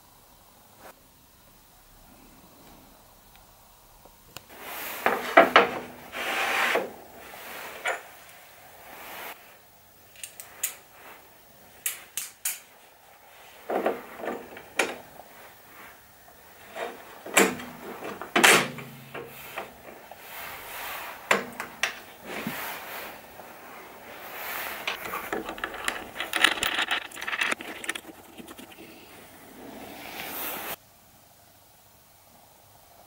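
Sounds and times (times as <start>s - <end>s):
metal and wood clicks and knocks: 24.9s - 28.8s.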